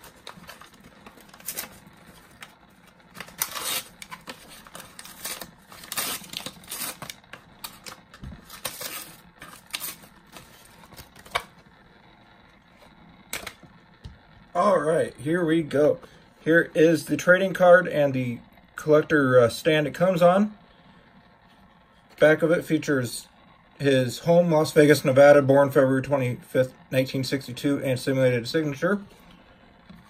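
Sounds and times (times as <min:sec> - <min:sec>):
plastic blister pack crackling: 0:00.0 - 0:14.2.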